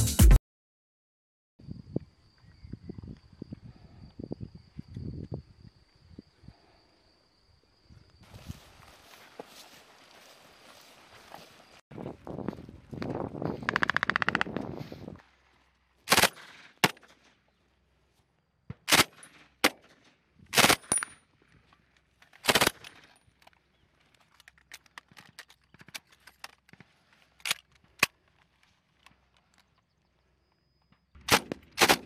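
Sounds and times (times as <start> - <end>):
gunshots: 16.1 - 17.1, 18.8 - 19.8, 31.2 - 32.0.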